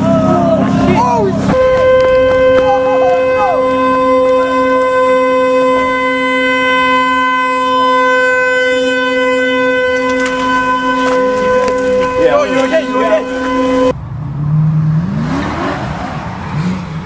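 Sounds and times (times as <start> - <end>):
car horn: 0.0 - 14.0.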